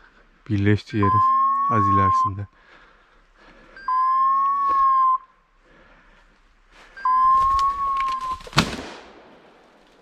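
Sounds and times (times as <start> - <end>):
long steady beep: 0.9 - 2.6, 3.6 - 5.5, 6.9 - 8.4.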